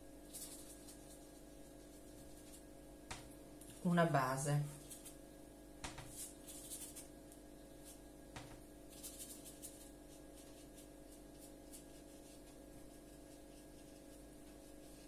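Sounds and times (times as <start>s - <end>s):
steady low hum: 0.0s - 15.0s
brush scratching on paper: 0.3s - 2.7s, 4.7s - 5.2s, 6.0s - 7.1s, 8.9s - 15.0s.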